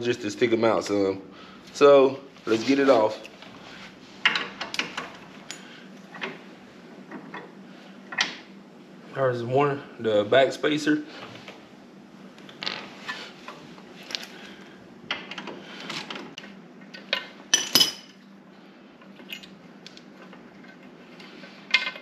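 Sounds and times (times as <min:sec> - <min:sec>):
metal hardware clinking: 0:17.1 - 0:18.2.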